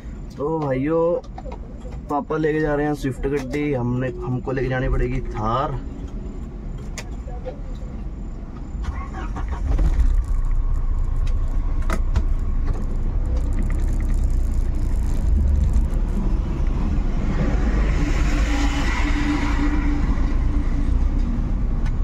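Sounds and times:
engine and road rumble: 0:00.0 - 0:22.0
rushing noise: 0:08.8 - 0:21.8.

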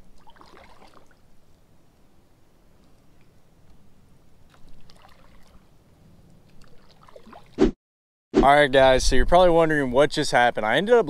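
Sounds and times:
small water splashes: 0:00.0 - 0:01.3, 0:04.5 - 0:05.7, 0:06.4 - 0:07.6
water lapping: 0:00.0 - 0:01.3, 0:04.5 - 0:05.8, 0:06.4 - 0:07.6.

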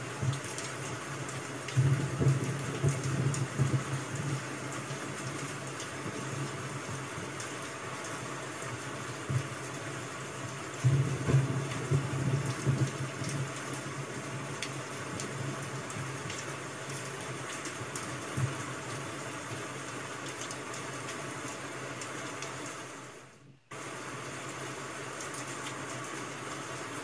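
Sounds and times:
rain hiss: 0:00.0 - 0:27.0.

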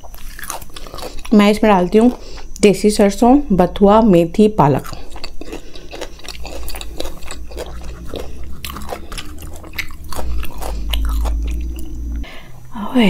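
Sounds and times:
close chewing with mouth clicks: 0:00.0 - 0:02.6, 0:04.7 - 0:12.3.

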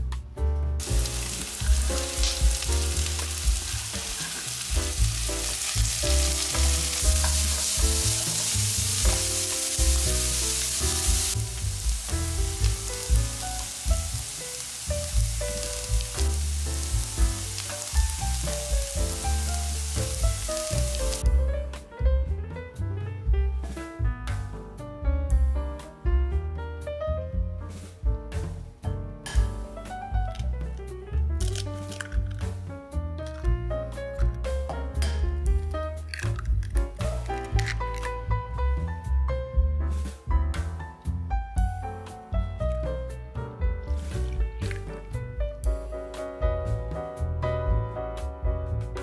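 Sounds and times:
music with steady beat: 0:00.2 - 0:22.4, 0:27.3 - 0:30.6, 0:36.8 - 0:49.0
food sizzling in pan: 0:00.8 - 0:21.2.

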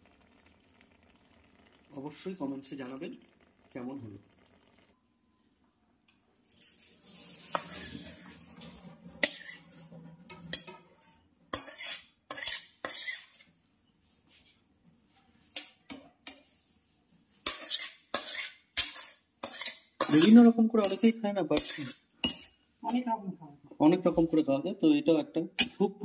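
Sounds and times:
metal spatula scraping wok: 0:06.6 - 0:13.6, 0:15.6 - 0:22.6.

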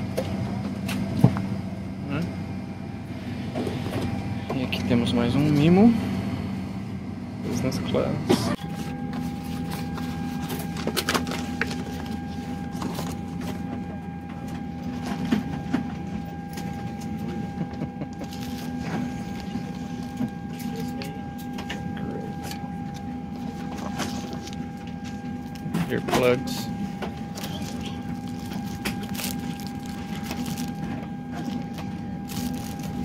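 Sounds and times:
airplane cabin hum: 0:00.0 - 0:33.0
thin steady whine: 0:00.0 - 0:33.0
wrapped items rustling: 0:18.2 - 0:20.9, 0:23.3 - 0:33.0.

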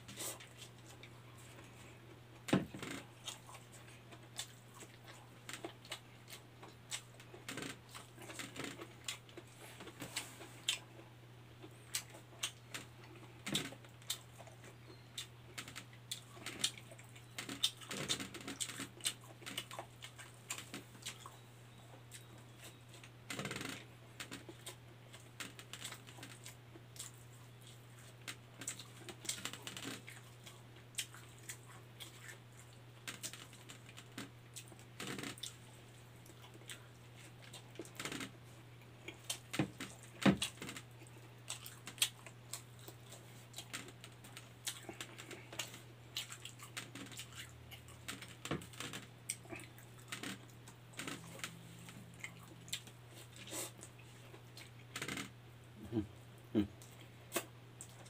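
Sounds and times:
steady low hum: 0:00.0 - 0:58.0
wet chewing and lip-smacking: 0:11.6 - 0:23.1, 0:24.2 - 0:55.3.

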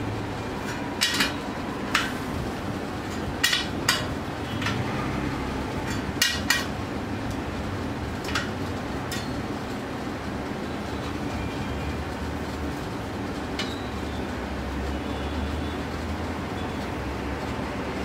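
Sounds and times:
metal clinks on bicycle spokes: 0:00.6 - 0:02.2, 0:03.1 - 0:04.8.

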